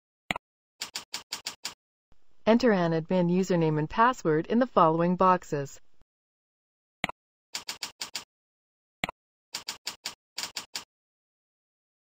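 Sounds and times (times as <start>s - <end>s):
computer keyboard keys clicking: 7.6s - 8.2s, 9.6s - 10.9s.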